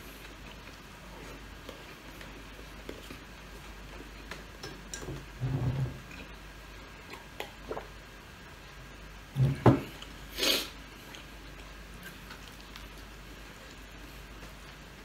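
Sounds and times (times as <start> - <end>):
chewing and mouth clicks: 0.0 - 4.6, 11.0 - 14.8.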